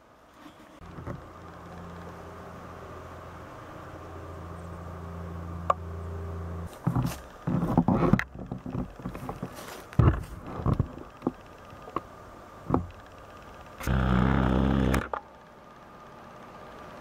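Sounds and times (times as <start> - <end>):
low motor hum: 0.0 - 17.0
knocks and rustling: 6.7 - 12.1, 12.7 - 13.0.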